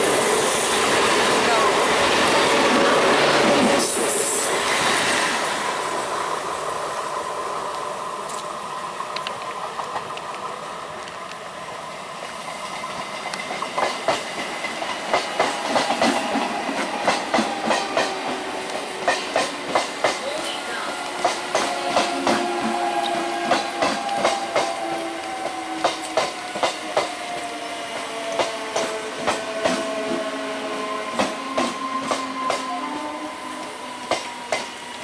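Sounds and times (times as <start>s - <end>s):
train wheels clacking over rail joints: 12.2s - 30.3s, 34.0s - 34.8s.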